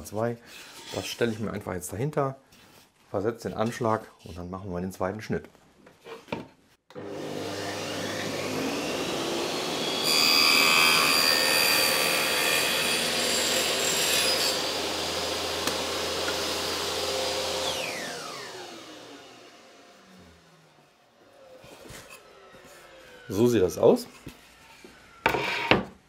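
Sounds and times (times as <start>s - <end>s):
table saw running: 6.9s - 23.4s
saw blade cutting wood: 7.0s - 19.0s.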